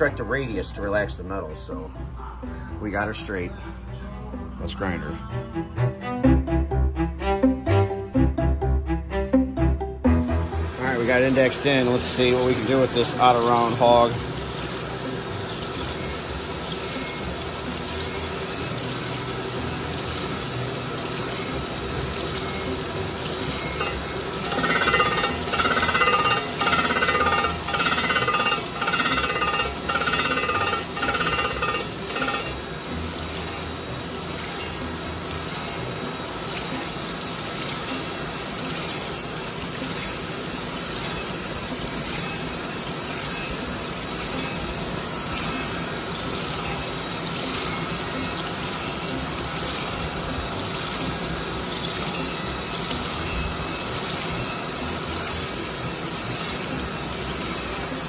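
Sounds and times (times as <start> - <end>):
grinding wheel on metal: 23.3 - 33.7.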